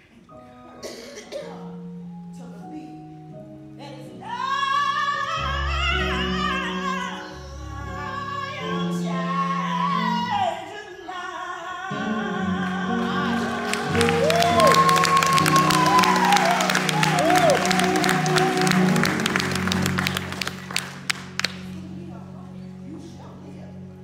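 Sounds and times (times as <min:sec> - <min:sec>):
woman singing with vibrato: 0:03.9 - 0:19.0
instrumental accompaniment: 0:11.9 - 0:23.1.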